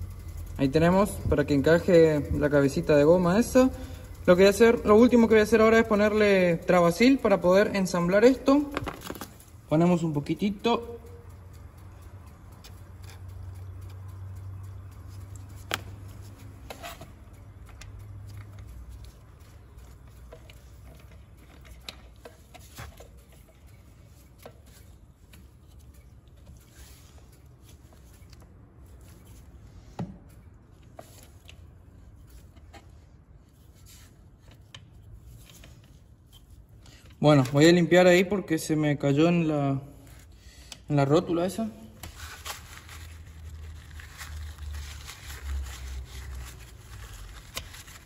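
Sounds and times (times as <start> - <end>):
low steady hum: 0.0 - 37.2.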